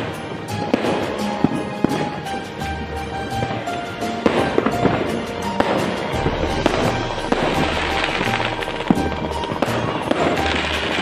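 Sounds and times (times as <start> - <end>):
fireworks popping and crackling: 0.0 - 11.0
music with bass beat: 4.2 - 11.0.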